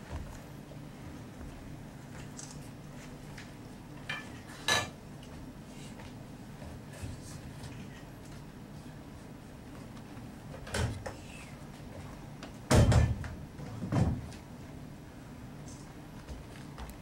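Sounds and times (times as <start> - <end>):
metal props hitting padded mat: 12.7 - 13.3.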